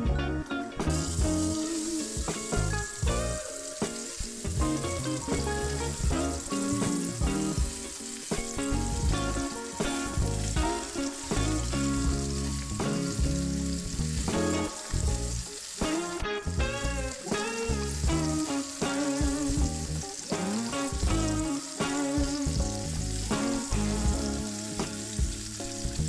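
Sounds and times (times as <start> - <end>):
background music: 0.0 - 26.0
oil sizzling and bubbling: 0.0 - 26.0.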